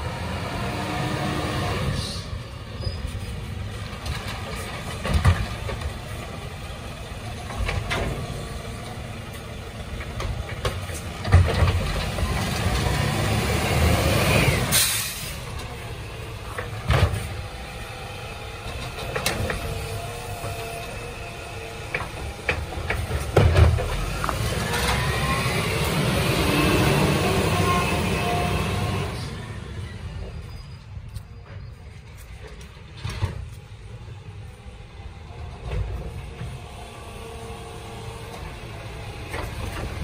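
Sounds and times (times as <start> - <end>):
garbage truck diesel engine: 0.0 - 40.0
air brake hiss: 14.6 - 15.4.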